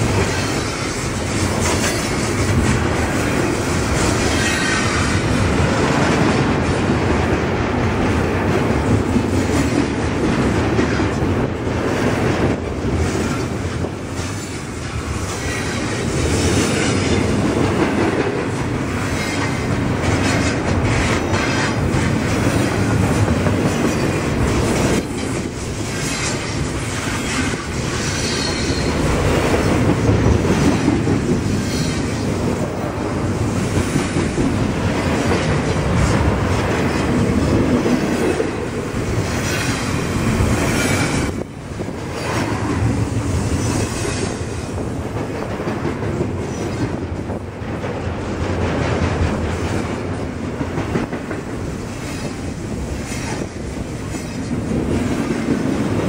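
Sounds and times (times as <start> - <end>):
clickety-clack over rail joints: 0.0 - 56.0
train wheels rumbling on rail: 0.0 - 56.0
high wheel squeal: 28.0 - 29.0.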